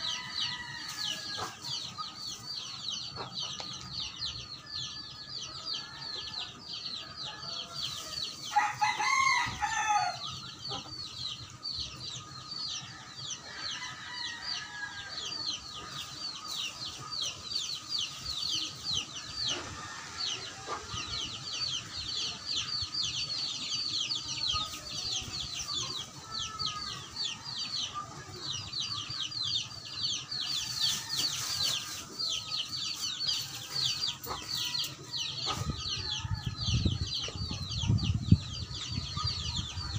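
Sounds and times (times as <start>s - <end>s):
rooster crowing: 8.5s - 10.3s.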